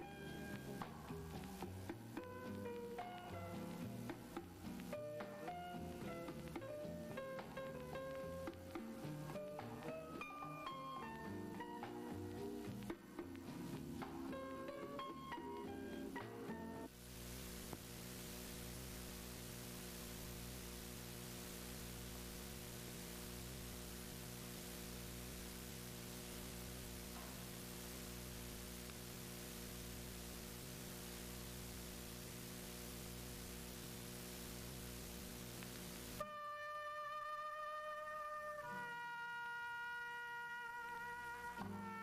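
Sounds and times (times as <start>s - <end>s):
constant hiss: 0.0s - 42.0s
electrical mains hum: 0.0s - 42.0s
music: 0.0s - 42.0s
click: 35.6s - 36.0s.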